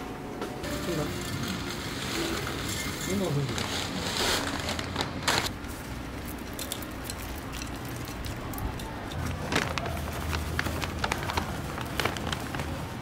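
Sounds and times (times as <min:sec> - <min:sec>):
plastic soil bag crinkling: 0:01.6 - 0:05.7, 0:07.4 - 0:13.0.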